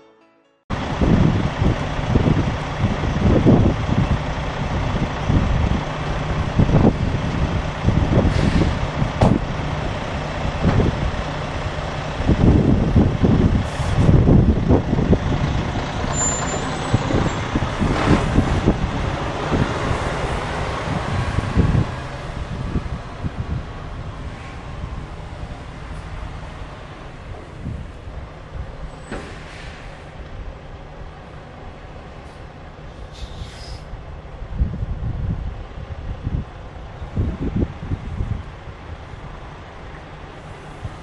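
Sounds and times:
truck diesel engine running: 0:00.7 - 0:28.9
wind buffeting microphone: 0:00.7 - 0:32.9, 0:33.8 - 0:41.0
air brake hisses: 0:08.3 - 0:08.8, 0:29.0 - 0:30.1, 0:32.2 - 0:34.0.

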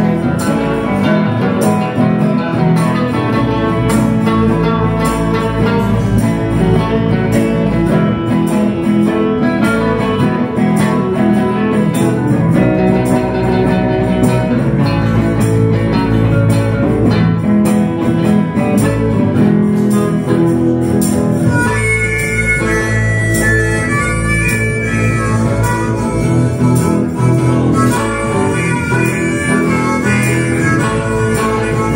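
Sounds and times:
live blues band playing: 0:00.0 - 0:31.9
harmonica wailing: 0:20.3 - 0:31.9.

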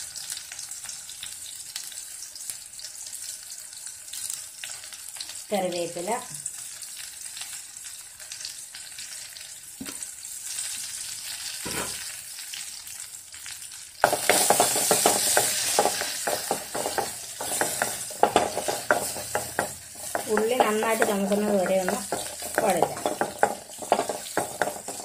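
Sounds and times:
spices sizzling in hot oil: 0:00.0 - 0:25.0
spatula scraping pan: 0:11.6 - 0:12.1, 0:14.0 - 0:25.0.

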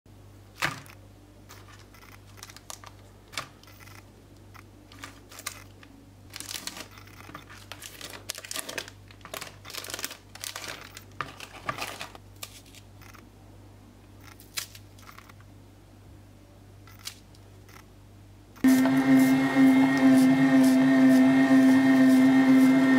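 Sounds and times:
faint steady hum: 0:00.1 - 0:18.7
foil wrappers crinkling and tearing: 0:01.5 - 0:03.1, 0:04.9 - 0:12.9.

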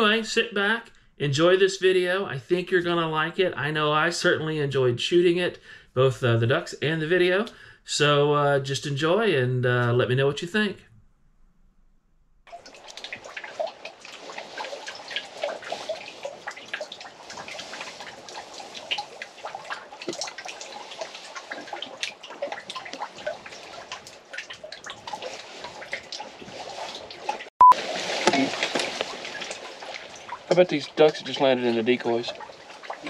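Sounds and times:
shallow water lapping and splashing: 0:12.5 - 0:33.0.

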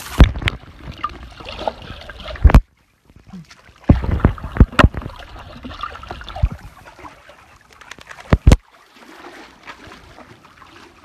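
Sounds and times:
water splashing and sloshing: 0:00.0 - 0:11.0.

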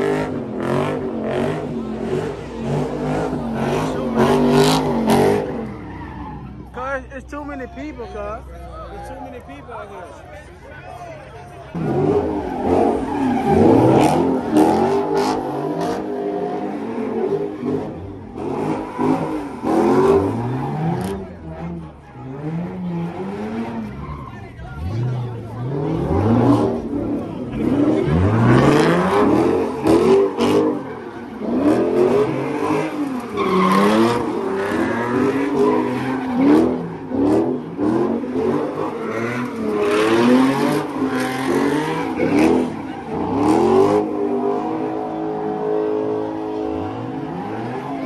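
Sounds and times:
car engine revving: 0:00.0 - 0:07.8, 0:11.6 - 0:48.0
tyres squealing: 0:27.6 - 0:37.3.

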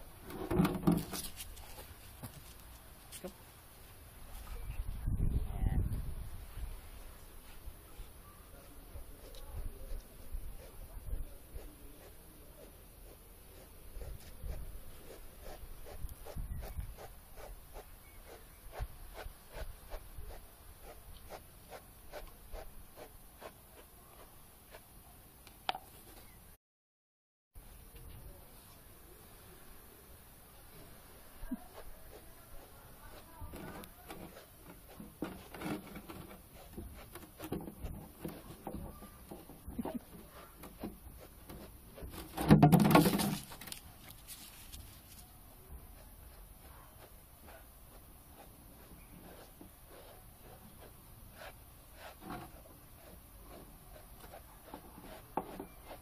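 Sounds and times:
rustle and bump: 0:00.2 - 0:03.4, 0:33.4 - 0:45.3
brush scratching through fur: 0:01.0 - 0:03.4, 0:06.9 - 0:24.9, 0:31.5 - 0:42.3, 0:43.4 - 0:45.3, 0:45.9 - 0:56.0.

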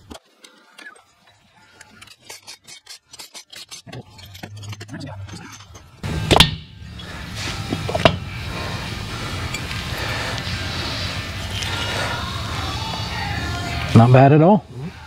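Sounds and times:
steady background noise: 0:03.9 - 0:15.0
metal clunks: 0:04.3 - 0:06.9, 0:07.7 - 0:08.4.

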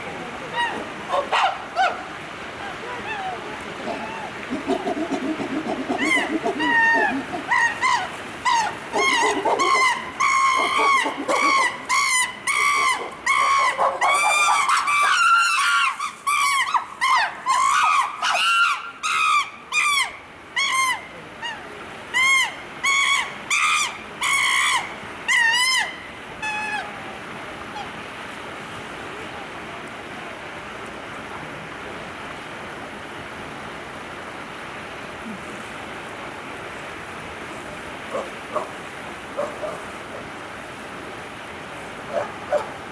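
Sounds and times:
chimpanzee hooting: 0:03.1 - 0:19.2.

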